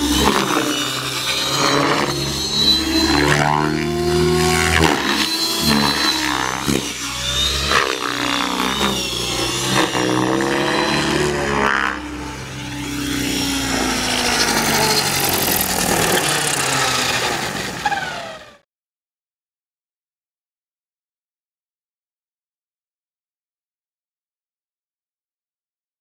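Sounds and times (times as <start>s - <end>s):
rc helicopter rotor and motor: 0.0s - 18.7s.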